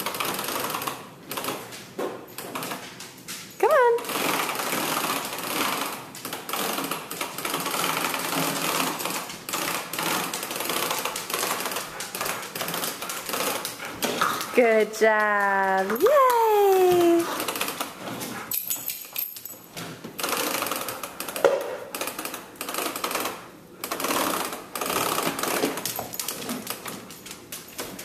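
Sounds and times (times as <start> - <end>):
plastic wheels rattling over tile: 0.0 - 1.6, 4.0 - 16.0, 20.2 - 27.1.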